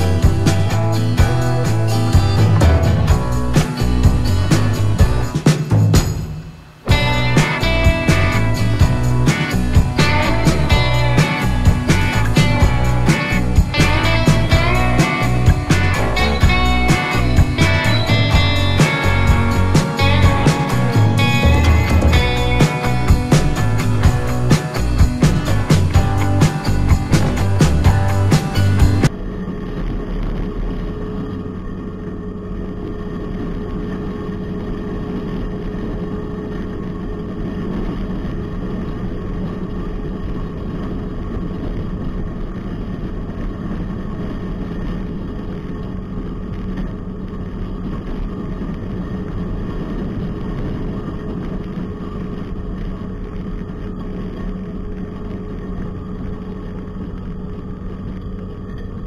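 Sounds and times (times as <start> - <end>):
diesel engine running: 0.0 - 6.1, 6.9 - 29.2
faint steady whine: 28.6 - 59.0.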